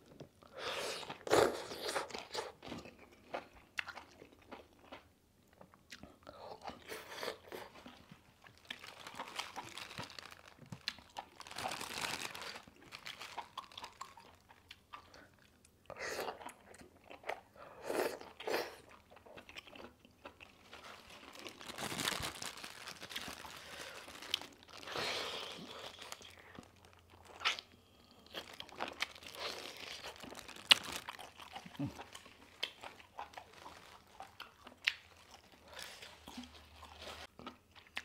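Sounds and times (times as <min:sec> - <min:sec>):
crunching and wet chewing: 0:01.0 - 0:38.0
plastic glove crinkling: 0:07.8 - 0:14.3, 0:20.4 - 0:27.6, 0:28.3 - 0:37.3.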